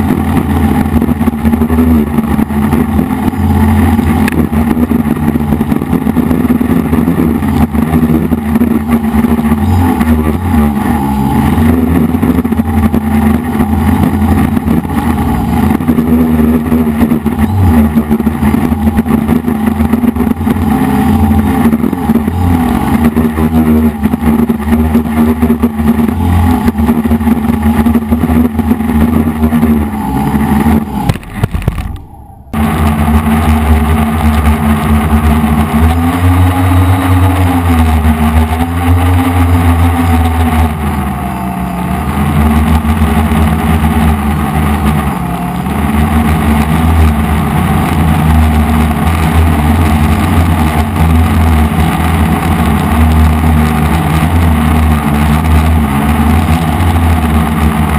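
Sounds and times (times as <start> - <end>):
quadcopter motors buzzing: 0.0 - 57.9.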